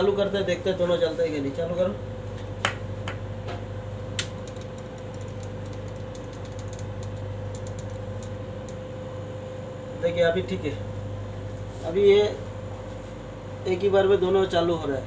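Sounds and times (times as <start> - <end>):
fluorescent light hum: 0.0 - 15.0
glow starters ticking: 4.2 - 8.8.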